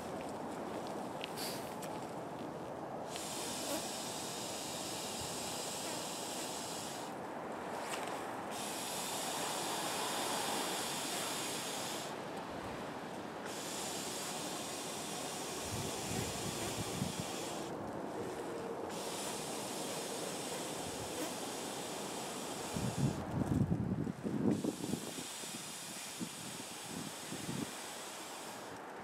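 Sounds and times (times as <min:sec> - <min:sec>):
person drawing breath: 0:01.3 - 0:01.8, 0:03.1 - 0:07.2, 0:07.8 - 0:23.2.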